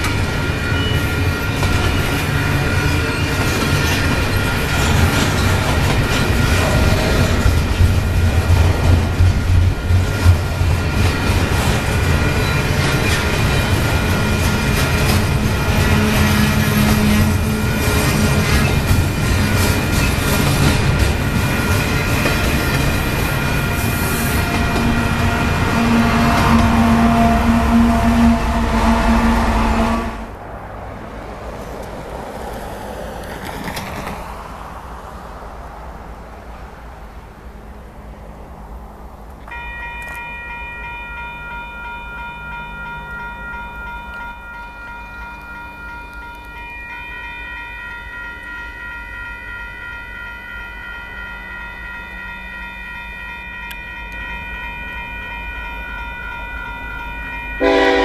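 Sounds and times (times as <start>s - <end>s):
crossing bell ringing: 0.0s - 30.4s, 39.4s - 58.0s
train rumbling: 0.0s - 58.0s
locomotive air horn: 14.2s - 18.8s, 23.6s - 30.4s, 57.6s - 58.0s.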